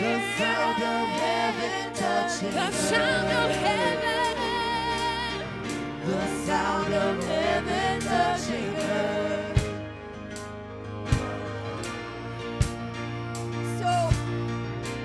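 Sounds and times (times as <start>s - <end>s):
voices singing: 0.0s - 10.0s, 11.1s - 13.1s
sustained keyboard chords: 0.0s - 15.0s.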